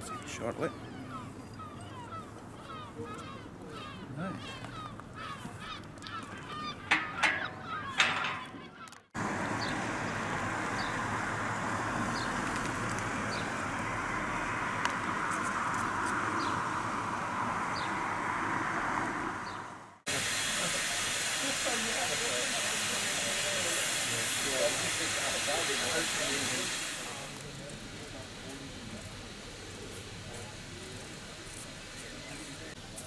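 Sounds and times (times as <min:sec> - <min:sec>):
loud sharp honk-like calls: 0:06.6 - 0:08.9.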